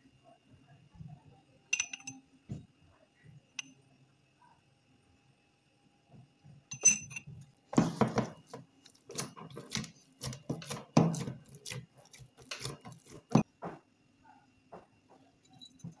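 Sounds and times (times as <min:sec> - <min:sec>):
hands kneading dough: 0:07.6 - 0:13.5.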